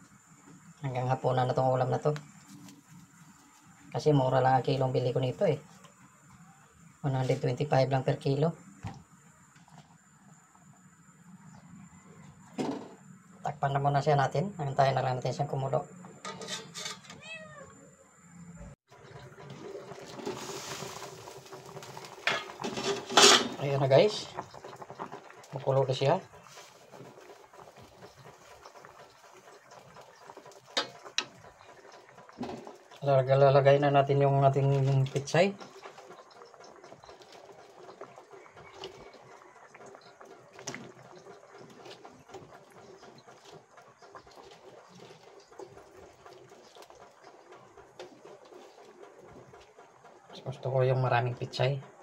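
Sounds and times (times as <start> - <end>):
cat meowing: 17.1 - 17.9
pot of broth simmering: 18.8 - 52.0.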